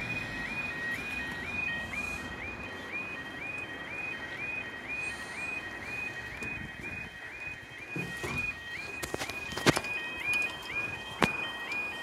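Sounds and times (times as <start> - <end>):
level crossing alarm: 0.0 - 12.0.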